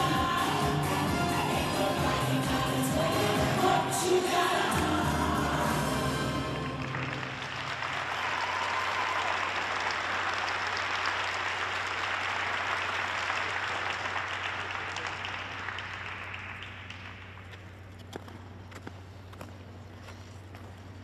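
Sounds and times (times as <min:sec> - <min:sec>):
audience applauding: 0:06.5 - 0:17.4
steady low hum: 0:15.5 - 0:21.0.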